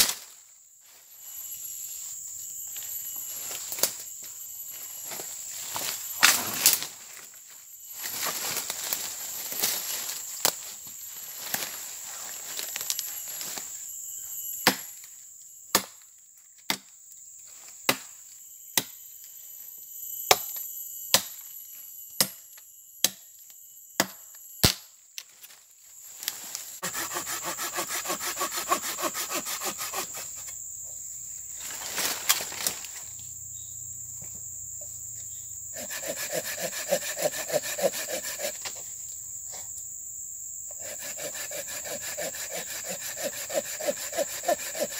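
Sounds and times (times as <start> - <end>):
high insect drone: 0.0 - 44.9
machete chopping wood: 14.6 - 15.0, 15.7 - 16.0, 17.9 - 18.1, 20.2 - 21.4, 22.2 - 22.4, 24.0 - 24.9, 35.8 - 38.8, 41.2 - 44.9
saw cutting wood: 26.8 - 30.5, 35.8 - 38.8, 40.7 - 44.9.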